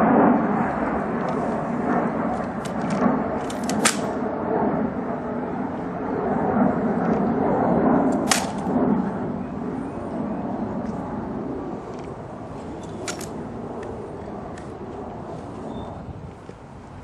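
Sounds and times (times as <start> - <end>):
rifle slaps and clicks: 2.4 - 4.2, 8.1 - 8.7, 12.8 - 14.7.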